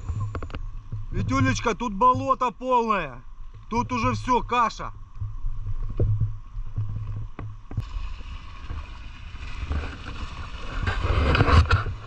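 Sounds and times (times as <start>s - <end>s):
mud churning and sloshing: 7.8s - 12.0s.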